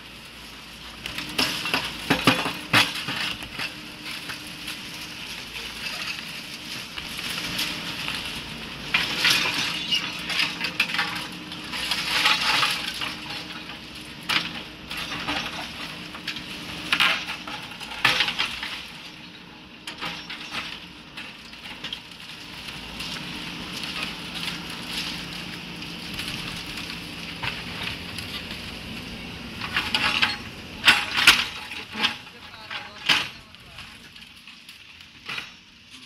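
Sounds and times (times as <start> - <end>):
diesel engine running: 0.0 - 35.0
rubble crunching and clattering: 0.1 - 36.0.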